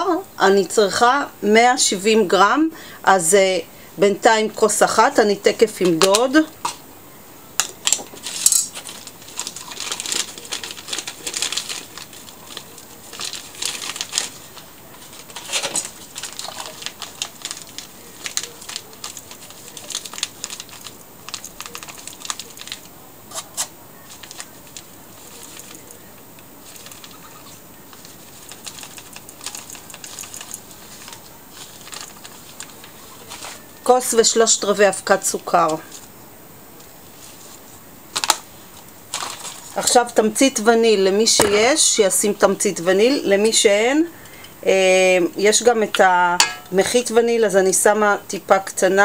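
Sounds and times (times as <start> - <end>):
plastic bag crinkling: 7.6 - 36.2, 37.0 - 40.2.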